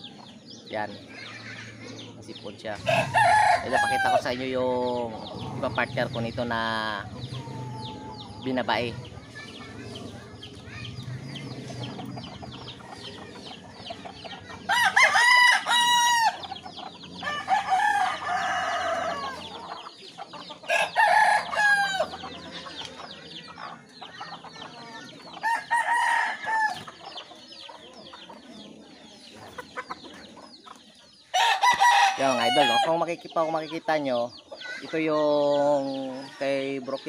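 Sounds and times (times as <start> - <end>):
chickens chirping and clucking: 0.0 - 37.0
roosters crowing: 2.7 - 28.6, 31.0 - 33.2.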